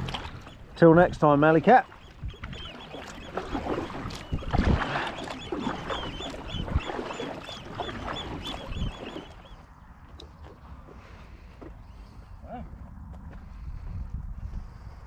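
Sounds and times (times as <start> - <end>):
bird chirping: 5.1 - 9.6.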